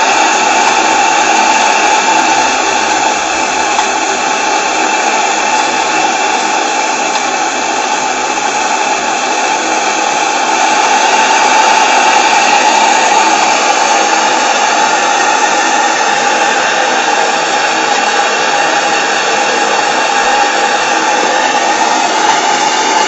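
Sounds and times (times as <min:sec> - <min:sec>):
gas burner hissing: 0:00.0 - 0:23.0.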